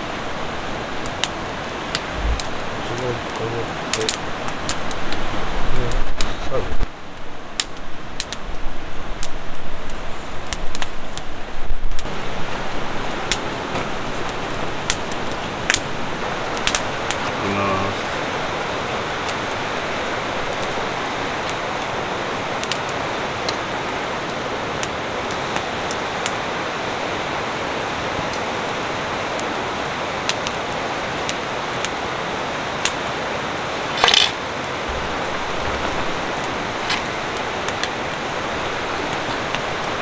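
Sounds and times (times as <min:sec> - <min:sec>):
steady outdoor rushing noise: 0:00.1 - 0:07.6, 0:28.9 - 0:40.0
short knock or scrape: 0:02.1 - 0:02.6.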